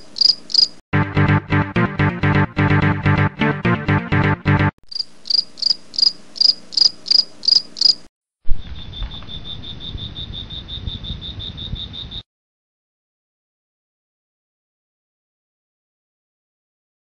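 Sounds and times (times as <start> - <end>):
crickets chirping: 0.0 - 0.7, 4.9 - 12.2.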